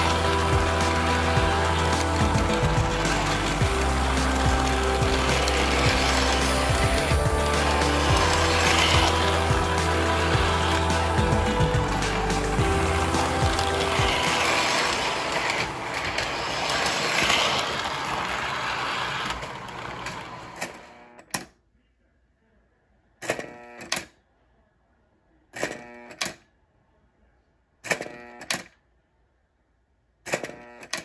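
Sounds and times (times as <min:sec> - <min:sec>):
model train running: 0:00.0 - 0:20.9.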